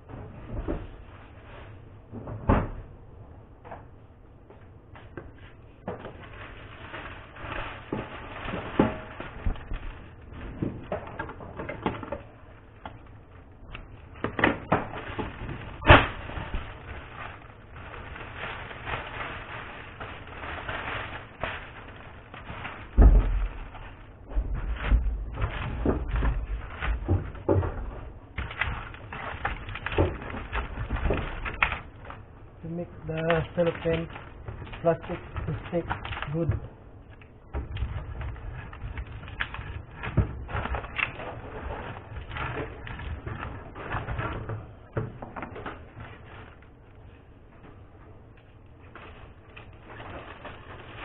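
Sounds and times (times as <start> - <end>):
cellophane crackling and rustling: 0.0 - 2.1, 4.8 - 51.0
low thud: 23.0 - 23.6.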